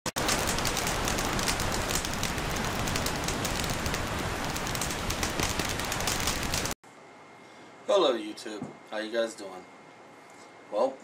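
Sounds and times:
flames crackling: 0.1s - 6.8s.

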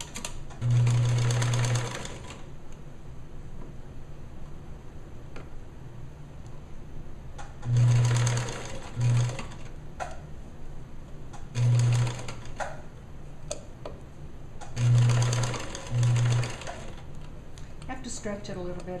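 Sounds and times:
sewing machine stitching: 0.0s - 2.4s, 7.6s - 9.7s, 11.5s - 12.7s, 14.8s - 17.1s.

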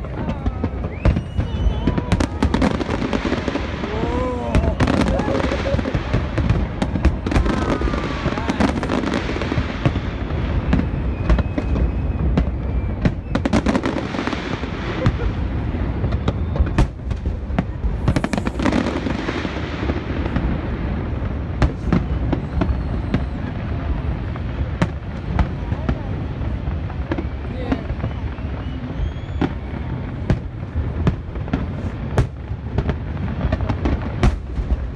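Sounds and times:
fireworks bangs and crackles: 0.0s - 34.9s.

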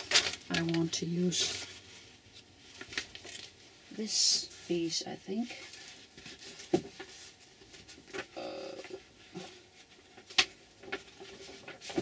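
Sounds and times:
paper rustling: 0.0s - 3.6s, 8.9s - 12.0s.

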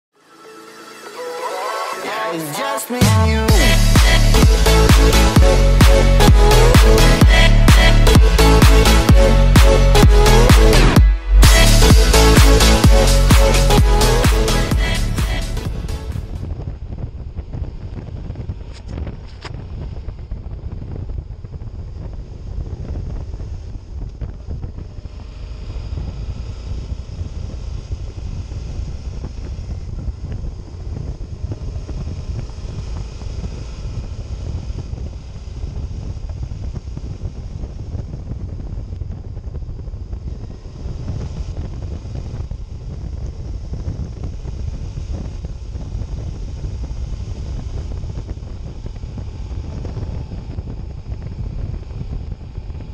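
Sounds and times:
motorcycle engine running: 3.1s - 52.9s
wind buffeting microphone: 15.7s - 52.9s.

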